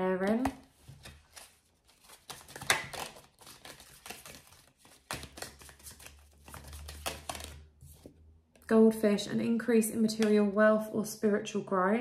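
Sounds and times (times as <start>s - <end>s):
cards being shuffled: 0.2s - 8.1s.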